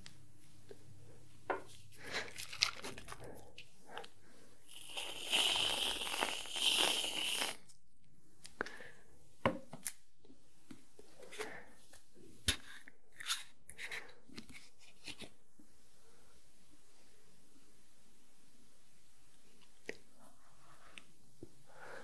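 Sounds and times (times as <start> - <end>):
aerosol cream can spraying: 4.7 - 7.7.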